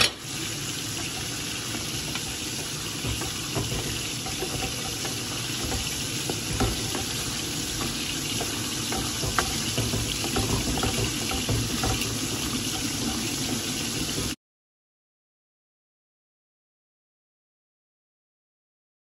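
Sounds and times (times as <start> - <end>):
food hissing in a pan: 0.0 - 14.4
spatula knocking against pan: 1.0 - 14.4.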